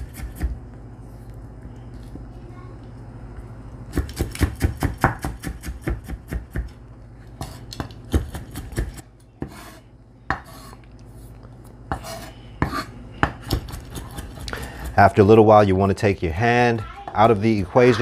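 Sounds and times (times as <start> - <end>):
knife chopping on wooden board: 4.0 - 6.7, 11.9 - 15.0.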